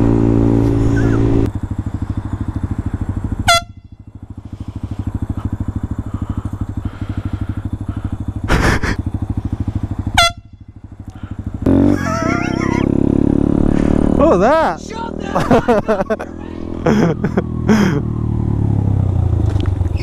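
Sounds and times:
motorcycle engine running: 0:00.0 - 0:20.0
air horn blasts: 0:03.4 - 0:04.0, 0:10.1 - 0:10.7.

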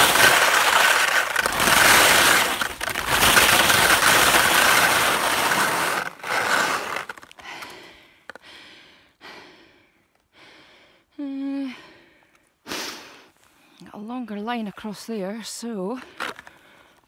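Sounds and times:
skis scraping over crusty snow: 0:00.0 - 0:07.5
woman breathing heavily: 0:07.3 - 0:13.8, 0:16.1 - 0:17.0.

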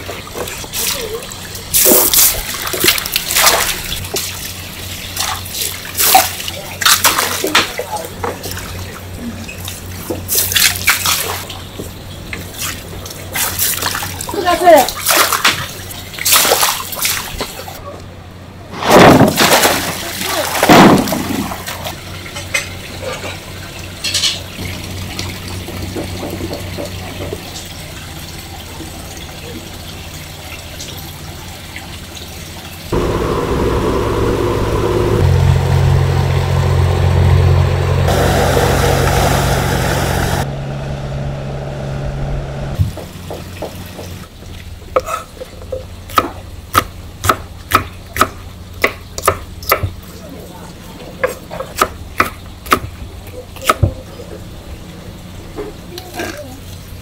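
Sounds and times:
steady low hum: 0:32.8 - 0:43.2.

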